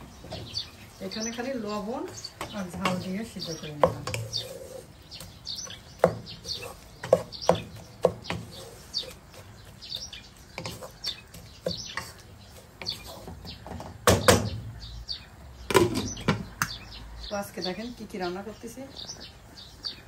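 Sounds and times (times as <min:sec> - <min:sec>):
wooden spoon scraping metal pot: 0:00.2 - 0:14.0.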